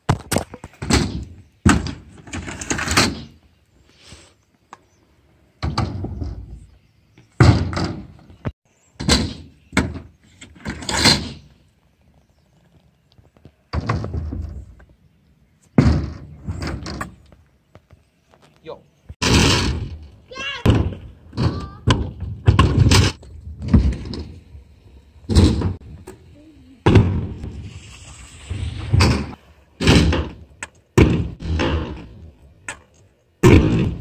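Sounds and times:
scooter wheels rolling on concrete: 0:10.1 - 0:33.4.

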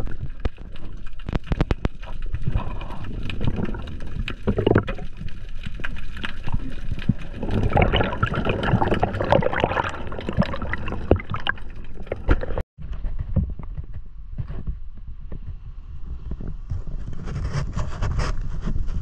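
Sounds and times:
underwater gurgling and bubbles: 0:00.0 - 0:12.7
underwater clicks and crackles: 0:00.0 - 0:14.6.

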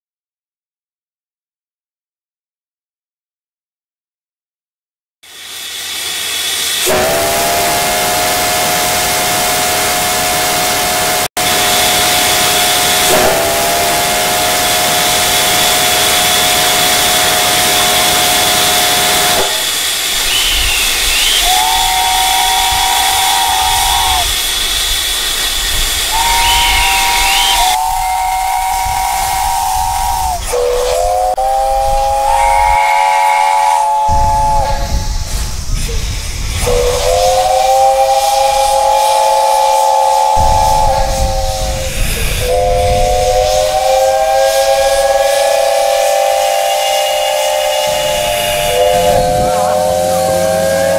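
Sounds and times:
hiss of steam: 0:05.2 - 0:50.9
steam locomotive whistle: 0:05.2 - 0:50.9
low rumble: 0:33.9 - 0:38.8, 0:40.3 - 0:45.8.

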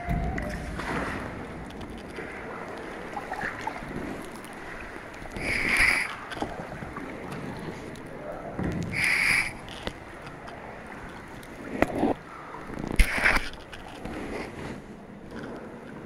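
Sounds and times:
kayak paddle splashing: 0:00.0 - 0:16.0
water sloshing around hull: 0:00.0 - 0:16.0.

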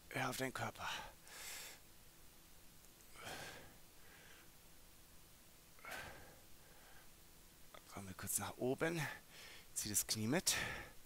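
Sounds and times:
man breathing softly: 0:00.8 - 0:01.9, 0:03.1 - 0:04.6, 0:05.8 - 0:07.2, 0:09.0 - 0:09.8, 0:10.5 - 0:11.0.

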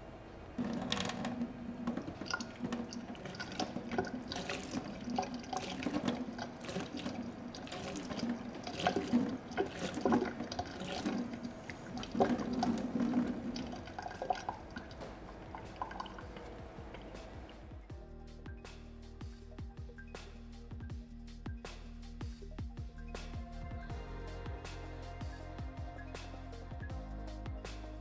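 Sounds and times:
water stream splashing into sink: 0:00.6 - 0:17.7
water drips: 0:01.6 - 0:17.9.

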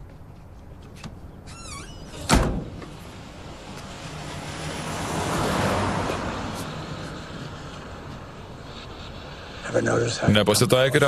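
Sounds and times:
vehicle passing by: 0:02.9 - 0:10.9.

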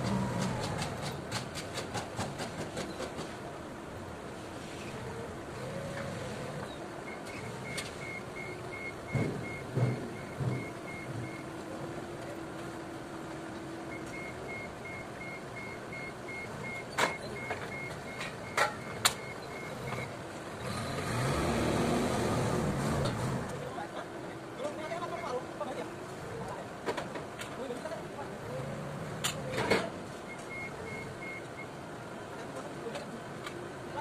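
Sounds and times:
forklift engine running: 0:00.0 - 0:02.1, 0:05.0 - 0:23.6
forklift reversing alarm beeping: 0:07.0 - 0:11.5, 0:13.9 - 0:20.1, 0:30.3 - 0:31.7.

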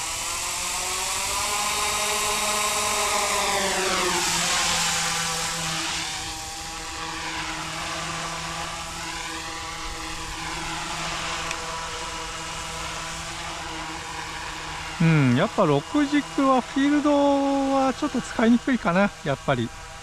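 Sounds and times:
electric motor whine: 0:00.0 - 0:20.0
rotors buzzing: 0:08.8 - 0:20.0.

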